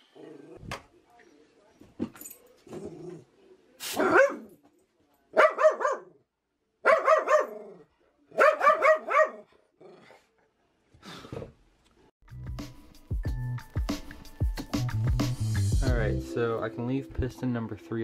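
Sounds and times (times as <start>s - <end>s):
small dog barking: 3.9s - 4.5s, 5.4s - 6.2s, 6.8s - 7.7s, 8.3s - 9.5s.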